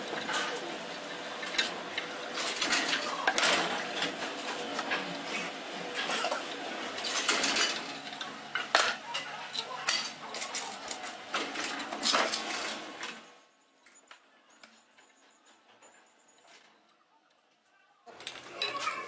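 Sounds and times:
metal parts and tools clinking: 7.0 - 13.2.

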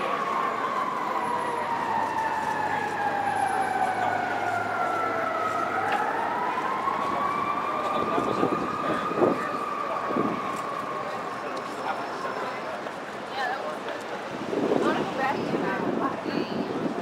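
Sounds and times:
emergency siren wailing: 0.0 - 12.7
background noise: 0.0 - 17.0.

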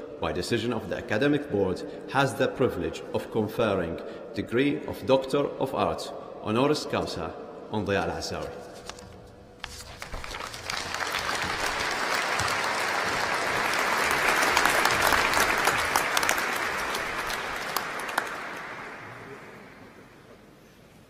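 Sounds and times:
audience applauding: 9.8 - 20.2.

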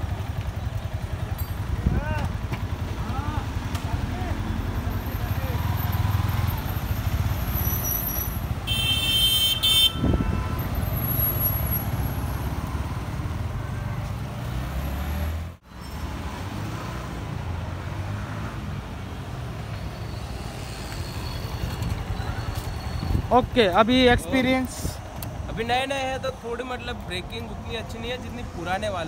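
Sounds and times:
motorcycle engine: 0.0 - 15.6
low traffic rumble: 0.0 - 29.0
vehicle horn toot: 7.7 - 11.6.

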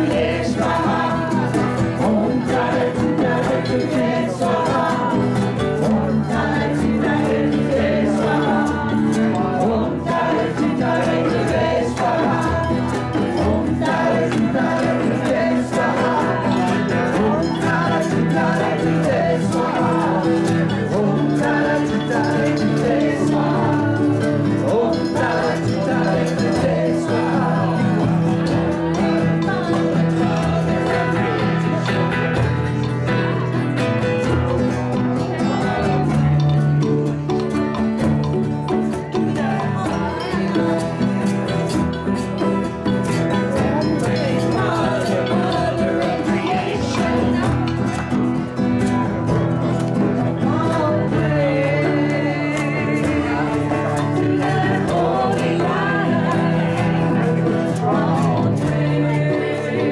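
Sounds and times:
group of voices singing: 0.0 - 59.9
hand drum: 0.0 - 59.9
strummed acoustic guitars: 0.0 - 59.9.

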